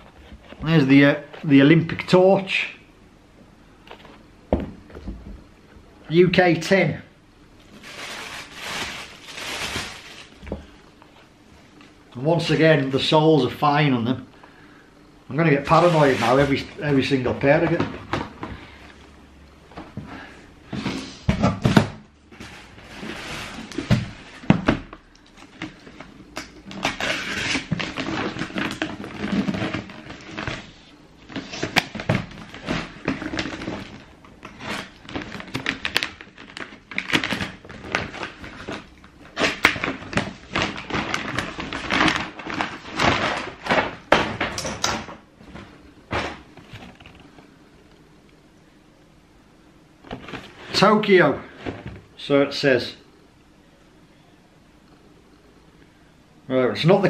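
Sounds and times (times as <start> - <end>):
cardboard box rustling and scraping: 22.3 - 24.5.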